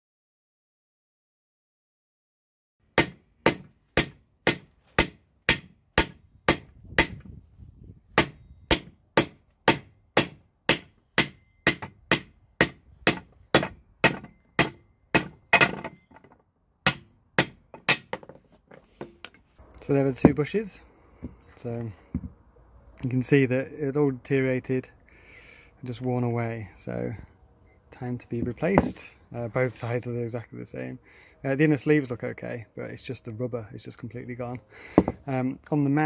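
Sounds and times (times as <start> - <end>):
hammer striking metal: 3.0 - 7.2, 8.2 - 16.2, 16.8 - 18.2.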